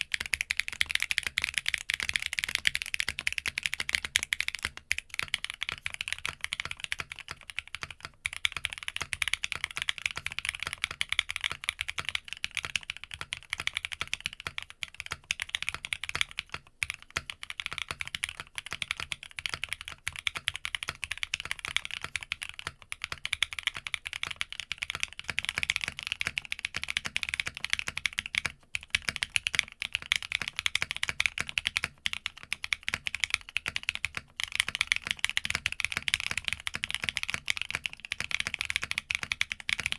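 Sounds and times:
mechanical keyboard typing: 0.0 - 39.9.

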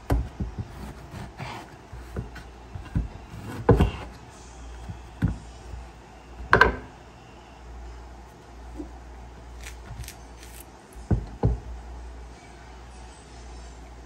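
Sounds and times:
knife cutting through orange: 9.5 - 10.7.

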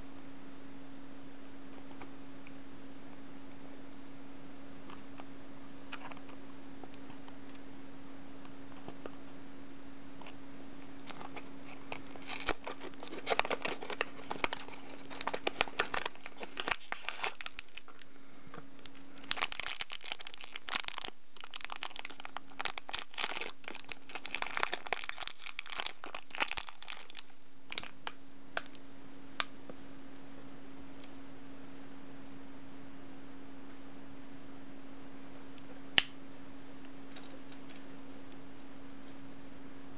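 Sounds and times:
foil bag crinkling and tearing: 11.0 - 18.1, 18.8 - 28.1.

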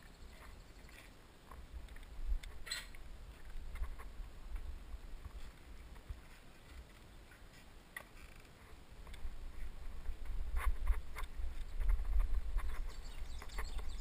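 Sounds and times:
wind rumble on microphone: 9.0 - 14.0.

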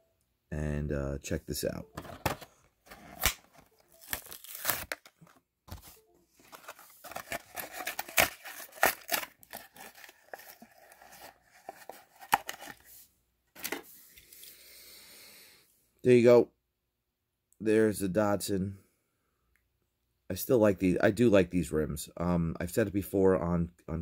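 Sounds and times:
cardboard ripping: 2.9 - 5.1, 6.5 - 12.8
plastic crinkling: 3.5 - 12.8.

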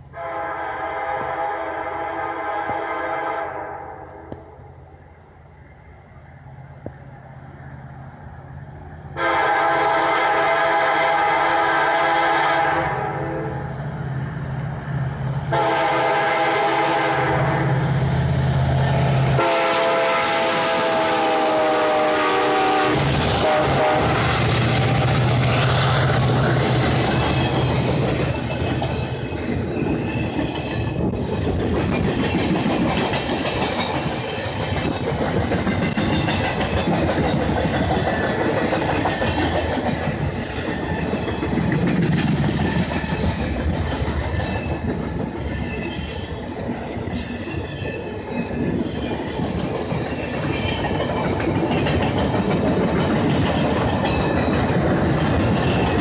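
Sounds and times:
diesel locomotive drone: 0.0 - 56.0
train wheels clattering over rail joints: 23.0 - 56.0
high wheel squeal: 44.3 - 49.3.

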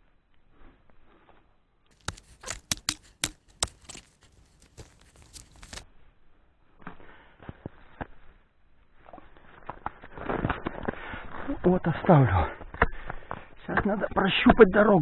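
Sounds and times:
wooden pole knocking: 2.0 - 4.1.

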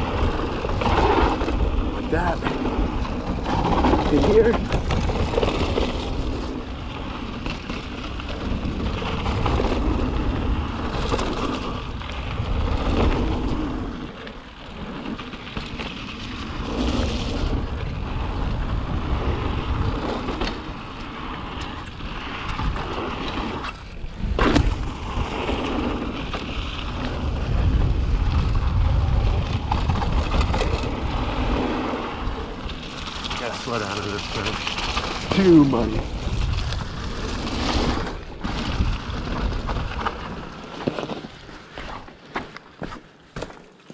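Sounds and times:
bike rattling over bumps: 0.0 - 43.9
bike tyres rolling through mud: 0.0 - 43.9
wind on microphone: 16.3 - 40.5.

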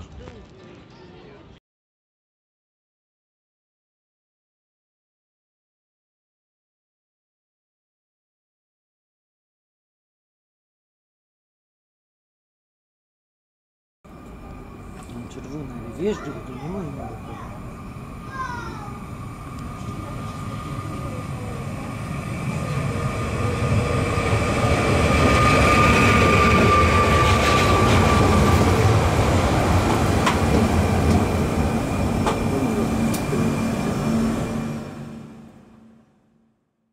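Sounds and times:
electric train pulling in: 14.1 - 36.6
train high whine: 14.1 - 36.7
wheels clicking over rail joints: 29.8 - 33.4.

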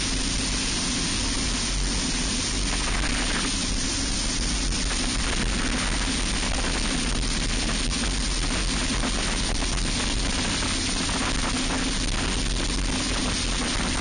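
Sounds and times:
wind and road noise: 0.0 - 14.0.

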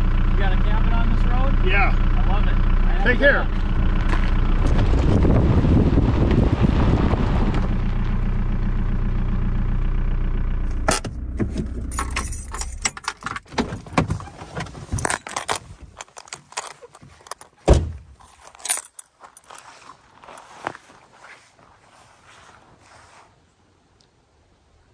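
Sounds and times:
car engine running: 0.0 - 15.4
car door shutting: 10.8 - 15.1, 17.6 - 18.1
keys jangling: 11.8 - 13.4, 15.0 - 19.6.

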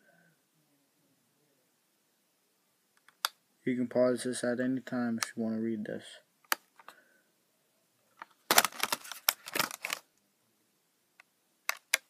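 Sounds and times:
plastic packaging crackling: 8.2 - 10.1.

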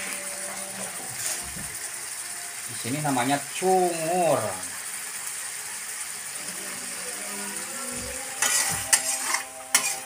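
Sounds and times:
meat sizzling in a wok: 0.0 - 10.0
metal spoon scraping a wok: 8.2 - 10.0.

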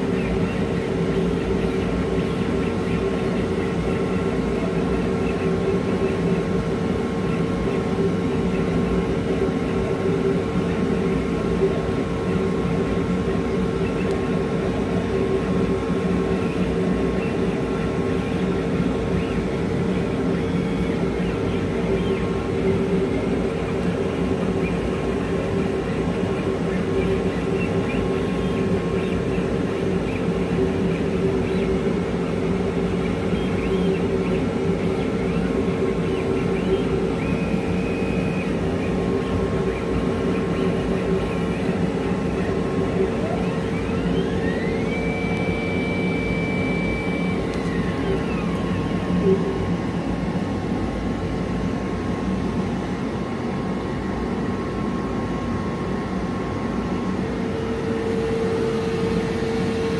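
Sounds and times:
laser cutter fans whirring: 0.0 - 59.9
motors whining: 10.6 - 49.8.

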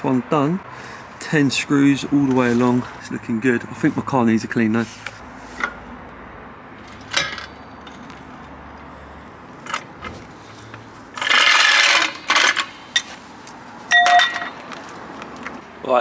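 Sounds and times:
jack lowering scraping rush: 8.9 - 13.9
trolley jack clicking and knocking: 11.1 - 13.1, 13.9 - 14.6.

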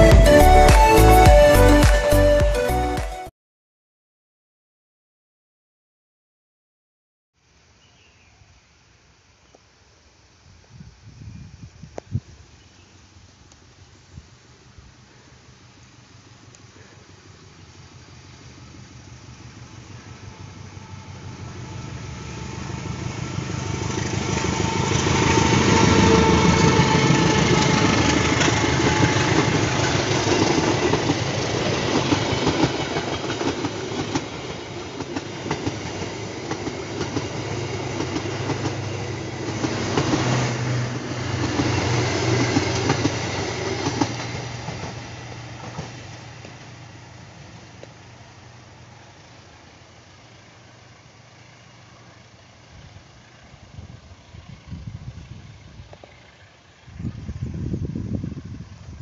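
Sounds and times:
diesel train passing slowly: 0.0 - 3.0, 12.4 - 59.0
wheels clicking over rail joints: 22.7 - 48.3.

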